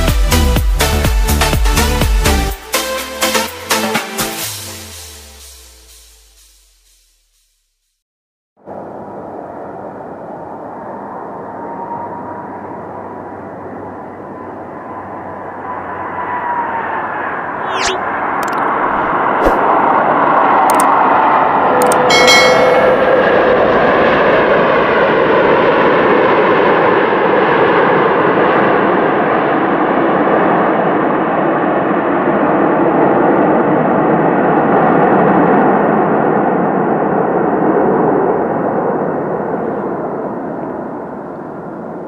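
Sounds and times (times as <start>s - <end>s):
jet engines running loud: 8.7s - 42.0s
short bell-like chime: 22.1s - 23.4s.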